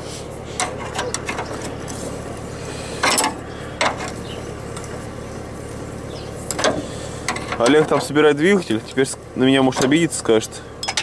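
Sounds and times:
steady low hum: 0:00.0 - 0:11.0
wrench clinking on steel frame: 0:10.8 - 0:11.0.

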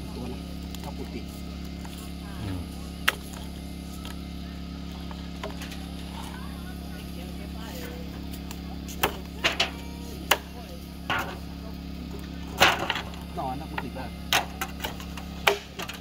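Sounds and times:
cleaver chopping on wooden board: 0:15.4 - 0:15.7.

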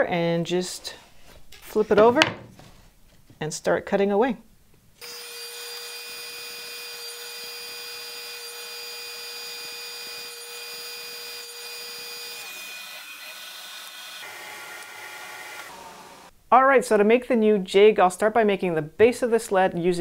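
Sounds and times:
table saw whining: 0:05.0 - 0:16.3.

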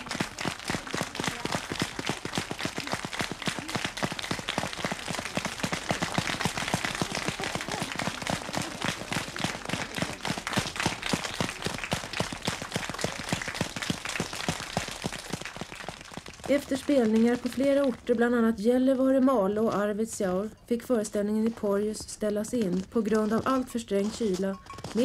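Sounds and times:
children applauding: 0:00.0 - 0:17.5.

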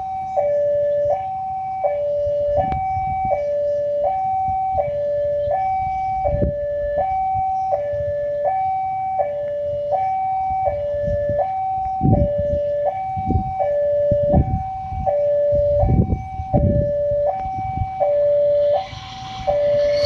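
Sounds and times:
level crossing warning alarm: 0:00.0 - 0:20.0
low rumbling: 0:15.8 - 0:20.0.

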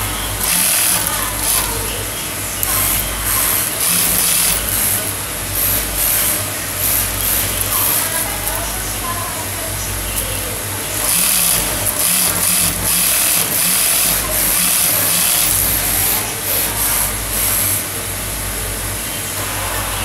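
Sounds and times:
sewing machine stitching: 0:00.0 - 0:08.8, 0:10.9 - 0:17.9
steady low hum: 0:00.0 - 0:20.0.

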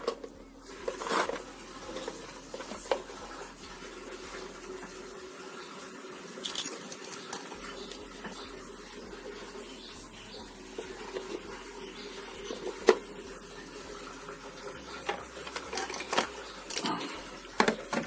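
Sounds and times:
cables rustling and clicking: 0:06.4 - 0:08.4, 0:15.0 - 0:18.0.

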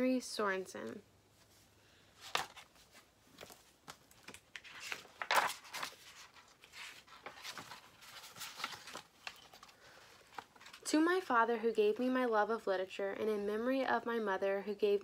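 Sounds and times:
book pages turning: 0:02.2 - 0:10.8.

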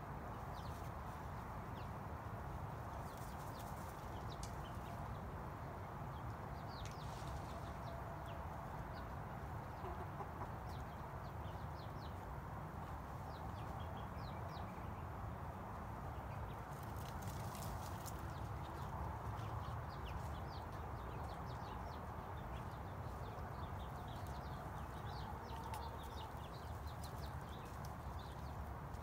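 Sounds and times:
chickens chirping: 0:05.8 - 0:15.1, 0:15.8 - 0:29.0.

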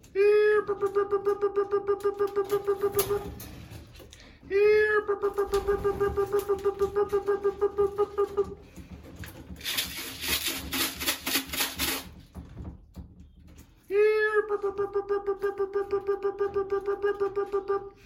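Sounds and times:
rapid rattling shakes: 0:00.0 - 0:18.0
pulsing whistle-like call tone: 0:05.0 - 0:08.5.

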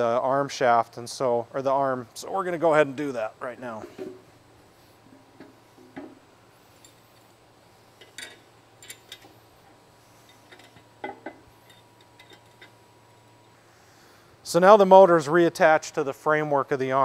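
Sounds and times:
metal hardware clinking: 0:08.0 - 0:09.4, 0:10.2 - 0:12.8.

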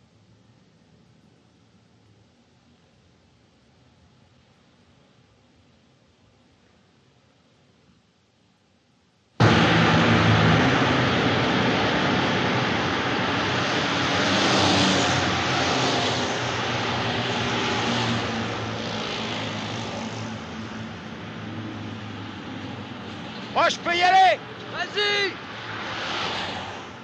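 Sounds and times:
loud engine drone: 0:09.4 - 0:26.6
rushing noise: 0:09.4 - 0:27.0.

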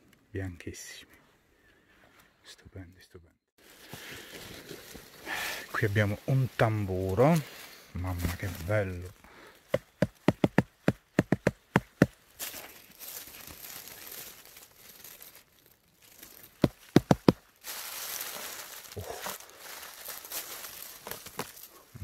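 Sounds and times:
dry leaves rustling: 0:03.6 - 0:10.4, 0:11.7 - 0:22.0
sharp taps on mushroom cap: 0:09.7 - 0:12.2.

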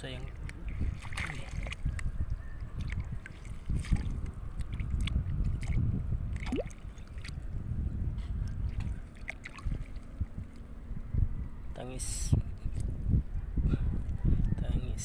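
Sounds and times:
seawater sloshing and gurgling: 0:00.0 - 0:10.6
steady low rumble: 0:00.0 - 0:15.0
small splashes and clicks: 0:00.2 - 0:02.1, 0:02.8 - 0:07.4, 0:08.4 - 0:10.7.

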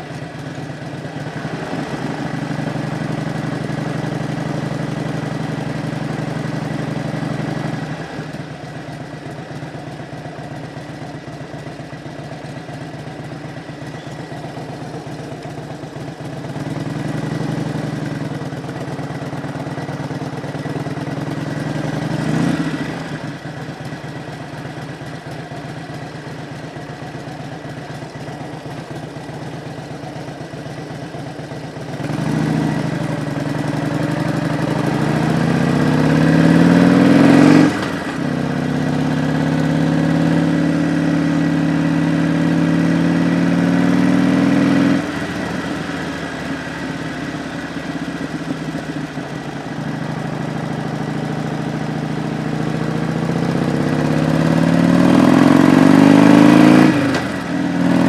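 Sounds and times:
motorcycle engine accelerating: 0:00.0 - 0:58.0.

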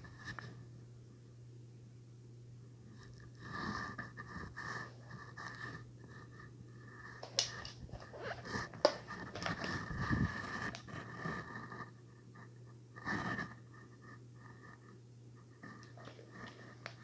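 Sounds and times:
low steady hum: 0:00.0 - 0:17.0
rubber mask rubbing and rustling: 0:07.3 - 0:11.9, 0:15.4 - 0:17.0.

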